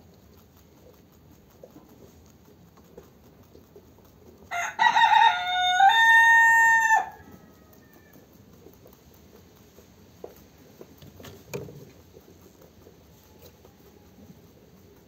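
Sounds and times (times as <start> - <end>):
rabbit chewing grass: 0.0 - 15.0
rooster crowing: 4.5 - 8.3.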